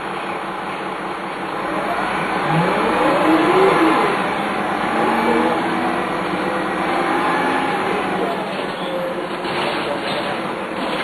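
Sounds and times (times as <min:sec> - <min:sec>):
bus diesel engine running: 0:00.0 - 0:11.0
gearbox whine: 0:01.3 - 0:09.5.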